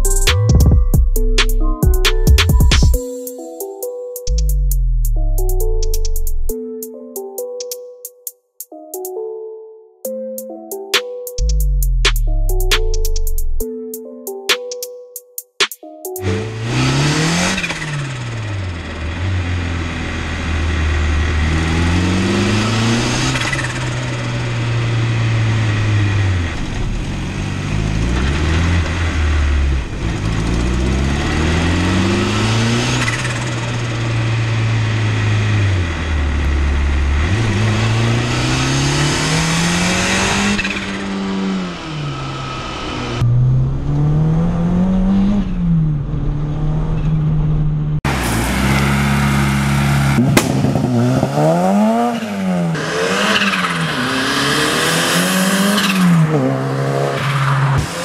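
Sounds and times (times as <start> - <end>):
car engine accelerating hard: 16.2 - 58.0.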